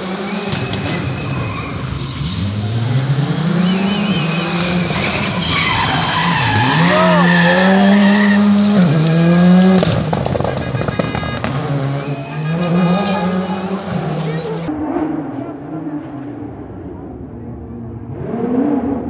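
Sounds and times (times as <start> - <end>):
rally car engine revving: 0.0 - 19.0
tyres squealing: 0.3 - 2.9, 3.6 - 9.0.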